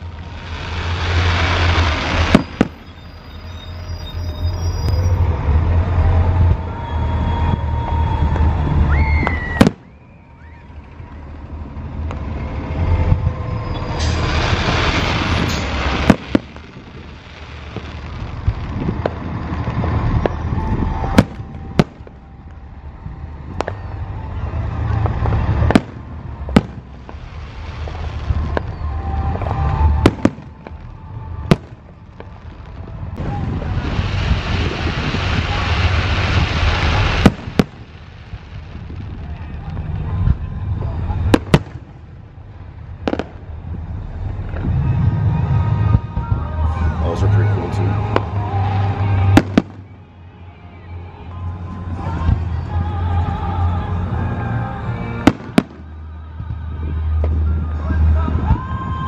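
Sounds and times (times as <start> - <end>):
fireworks hiss: 0.0 - 5.2, 13.7 - 21.3, 26.6 - 30.8, 33.3 - 40.0
fireworks bangs: 0.0 - 22.7, 23.5 - 50.1, 55.0 - 56.0
low rolling rumble: 0.0 - 59.0.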